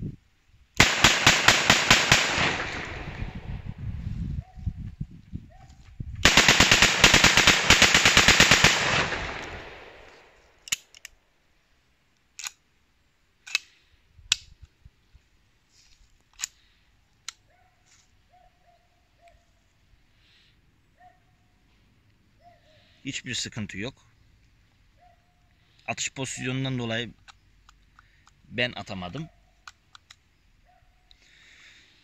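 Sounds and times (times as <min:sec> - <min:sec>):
automatic blank pistol burst: 0:00.8 - 0:03.6, 0:06.2 - 0:11.2
sharp single clicks: 0:09.2 - 0:11.2.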